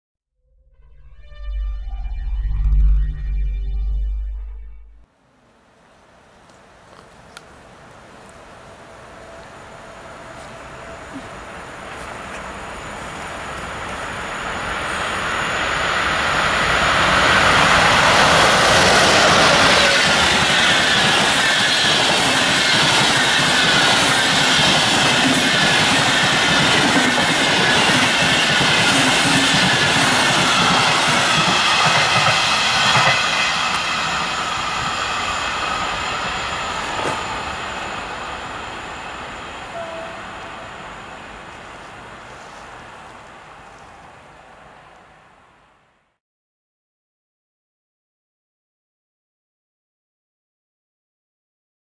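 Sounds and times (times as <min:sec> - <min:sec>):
wavering high squeal: 0:00.5 - 0:05.0
train wheels clattering: 0:16.9 - 0:38.2.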